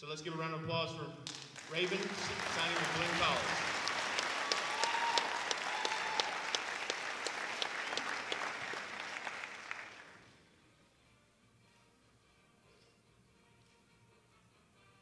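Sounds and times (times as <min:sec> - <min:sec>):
sharp individual claps: 0:01.2 - 0:10.2
audience applauding: 0:01.2 - 0:10.3.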